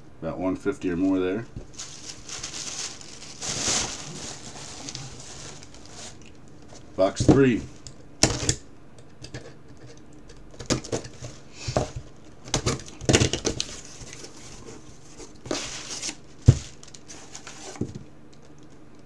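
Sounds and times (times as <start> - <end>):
cardboard flaps rustling: 1.5 - 7.8.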